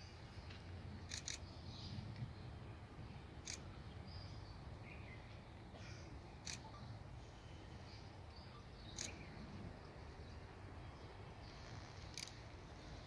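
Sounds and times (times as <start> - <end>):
faint bird chirps: 3.4 - 13.0.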